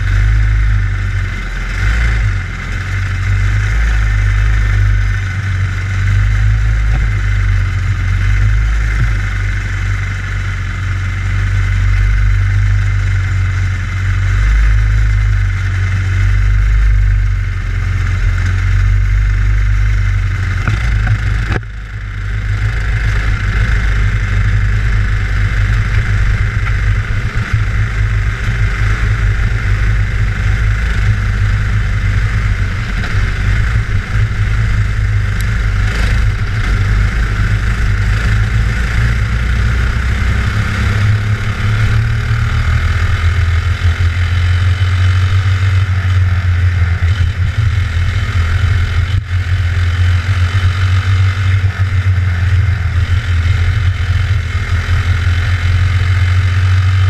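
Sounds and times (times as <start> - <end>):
kart engine running: 0.0 - 57.0
other kart engines: 0.0 - 57.0.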